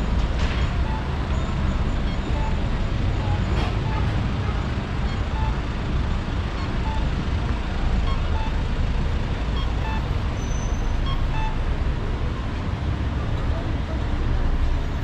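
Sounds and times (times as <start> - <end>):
traffic rumble: 0.0 - 15.0
short beeps: 0.7 - 2.8, 6.6 - 7.1, 8.0 - 8.8, 9.5 - 11.6.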